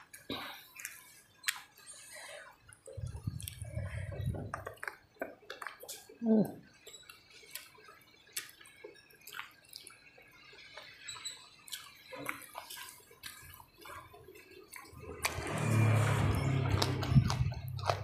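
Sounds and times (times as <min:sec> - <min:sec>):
wet chewing and lip-smacking: 0:00.1 - 0:02.1, 0:02.7 - 0:18.0
fingers rustling food: 0:11.7 - 0:18.0.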